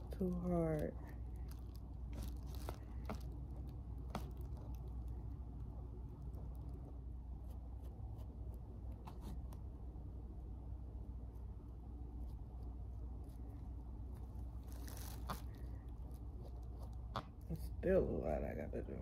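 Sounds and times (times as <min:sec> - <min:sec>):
low room hum: 0:00.0 - 0:19.0
brush dabbing and scraping: 0:02.8 - 0:09.6.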